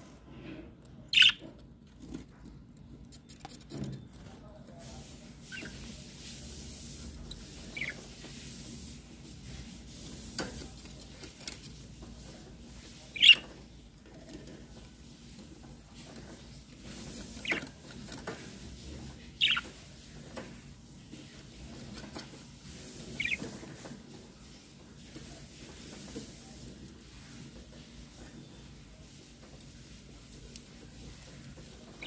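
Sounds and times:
budgerigar chirping: 1.1s - 1.4s, 19.4s - 19.6s.

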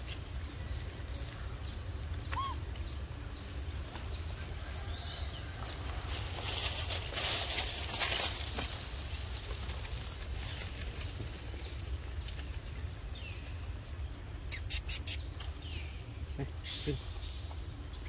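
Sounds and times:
rustles: 0.0s - 15.6s
high-pitched insect drone: 12.8s - 18.0s.

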